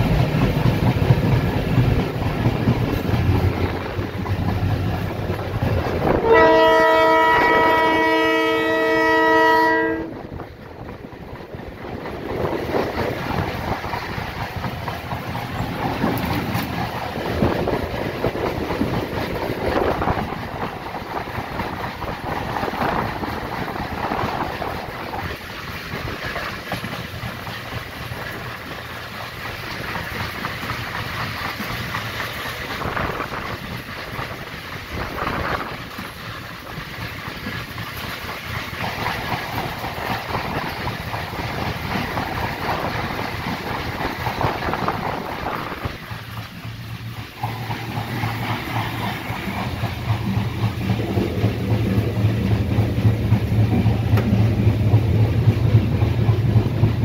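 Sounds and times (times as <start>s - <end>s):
train wheels on rails: 0.0s - 57.0s
locomotive air horn blast: 6.1s - 10.2s.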